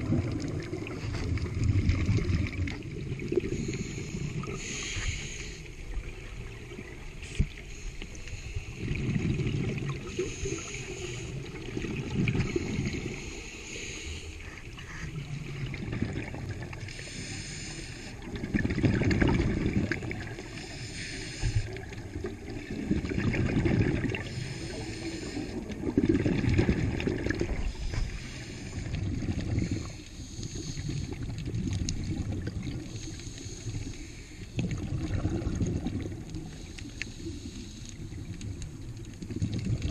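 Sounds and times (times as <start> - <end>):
exhaled bubbles rushing: 0.0 - 4.8, 8.7 - 13.4, 14.6 - 17.0, 18.0 - 20.7, 21.4 - 30.0, 30.6 - 33.8, 34.5 - 36.6, 38.0 - 39.9
regulator inhale hiss: 3.4 - 6.1, 7.2 - 9.1, 9.8 - 11.7, 12.3 - 15.3, 16.7 - 18.3, 20.2 - 22.1, 24.2 - 25.8, 27.6 - 31.3, 32.7 - 34.6, 36.4 - 38.3.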